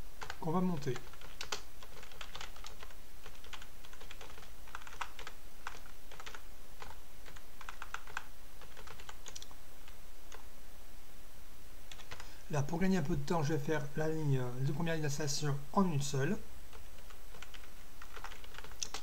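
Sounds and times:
low steady hum: 0.0s - 19.0s
keyboard typing clicks: 1.0s - 9.5s.

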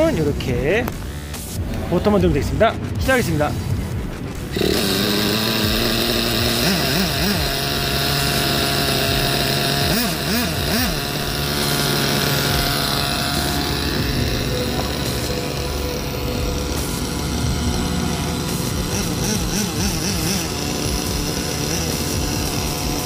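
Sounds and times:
small nitro engine idling and revving: 0.0s - 23.0s.

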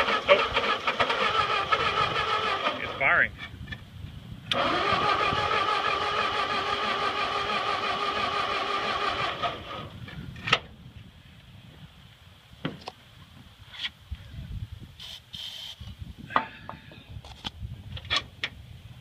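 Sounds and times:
starter motor cranking engine: 0.0s - 3.0s, 4.5s - 10.0s.

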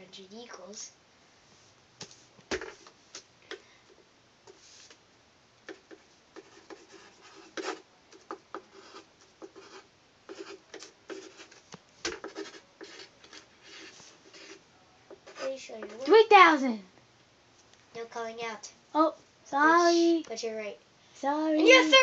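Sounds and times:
pen scratching on paper: 5.7s - 14.6s, 15.2s - 16.0s.

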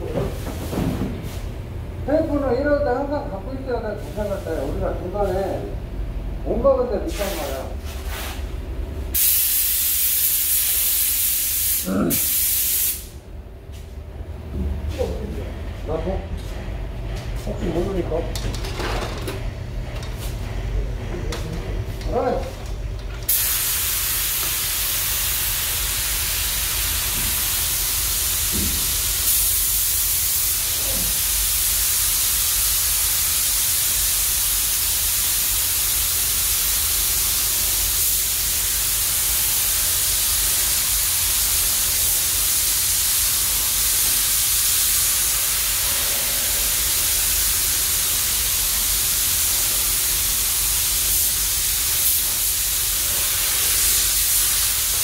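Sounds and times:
ventilation rumble: 0.0s - 9.2s, 13.0s - 32.3s
paint spray gun hissing: 9.2s - 13.2s, 23.3s - 55.0s.

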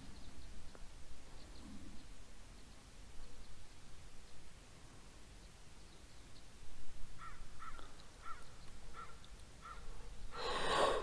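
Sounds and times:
crow-like bird calling: 7.2s - 11.0s.

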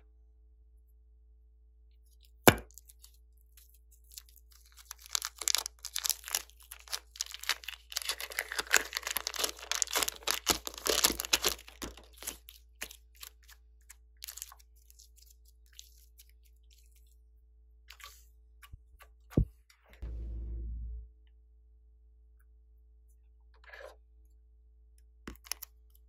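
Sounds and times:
clay squeezed by hand crackling: 2.2s - 17.1s.

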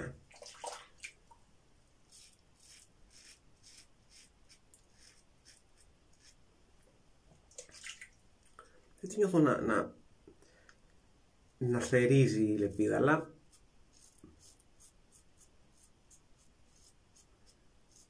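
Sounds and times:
razor scraping stubble: 2.1s - 6.4s, 13.5s - 17.3s.

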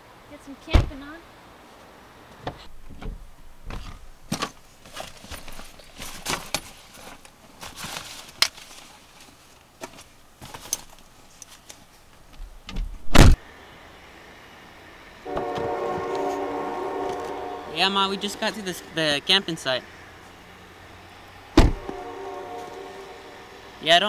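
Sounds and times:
rustling and knocks of handling: 2.4s - 13.0s
car door slamming: 21.6s - 22.0s.

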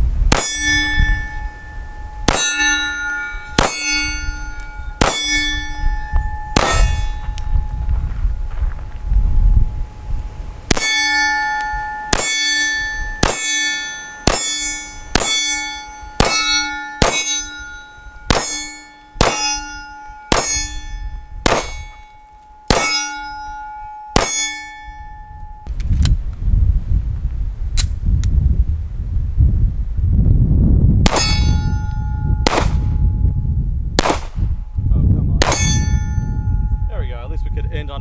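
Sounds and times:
steel target clanging: 0.3s - 7.8s, 10.7s - 25.7s, 31.1s - 33.0s, 35.4s - 37.9s
pistol shots: 5.0s - 5.6s, 6.6s - 7.2s, 13.2s - 17.6s, 21.4s - 22.0s, 22.7s - 23.2s, 31.1s - 31.5s, 32.5s - 32.8s, 34.0s - 34.4s, 35.4s - 35.7s.

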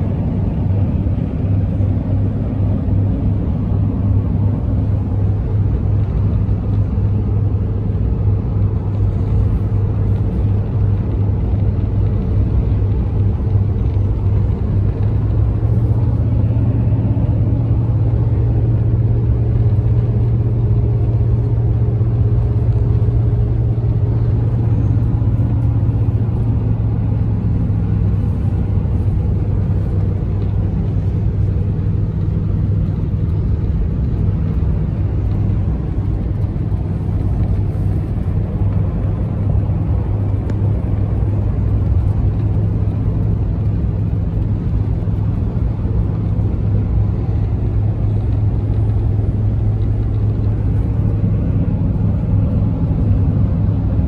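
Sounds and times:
car cabin engine and tyre drone: 0.0s - 54.0s.

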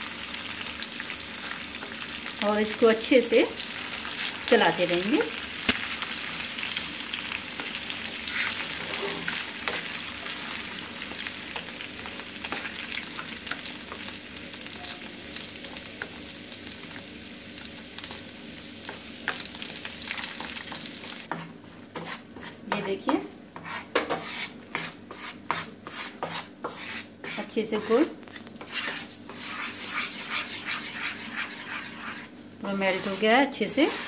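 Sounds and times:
sugar sizzling and bubbling in a pan: 0.0s - 34.0s
wooden spatula stirring: 21.2s - 22.8s, 23.6s - 34.0s.

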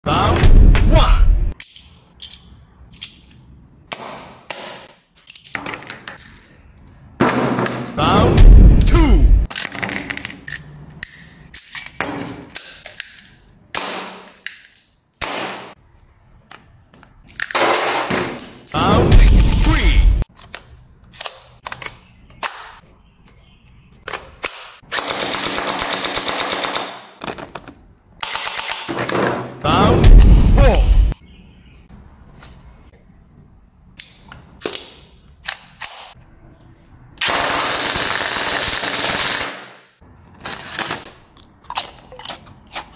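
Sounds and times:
loud sound: 7.9s - 9.5s, 29.6s - 31.2s.

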